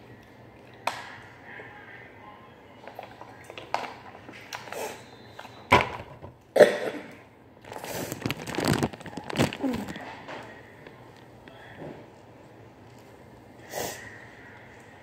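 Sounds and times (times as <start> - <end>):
plastic bag rustling: 7.6 - 11.2.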